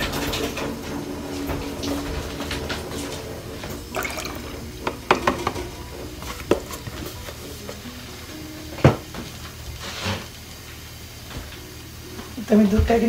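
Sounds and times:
milk pouring into metal pot: 0:03.8 - 0:05.7.

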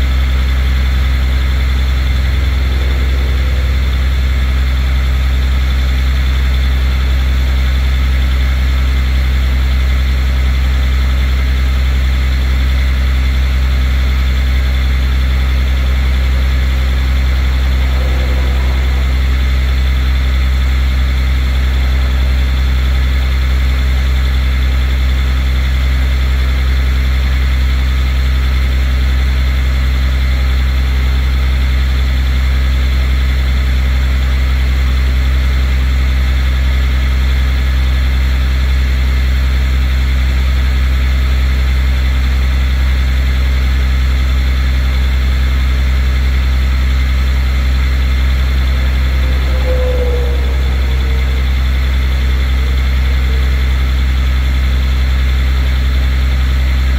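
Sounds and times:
truck engine idling: 0:00.0 - 0:56.9.

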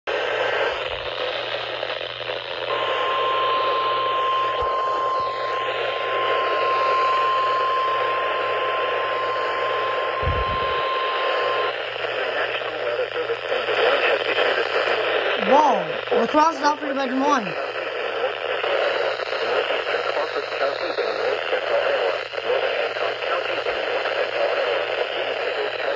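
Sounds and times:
radio static hiss: 0:00.1 - 0:25.9
high alert tone: 0:09.9 - 0:11.7.

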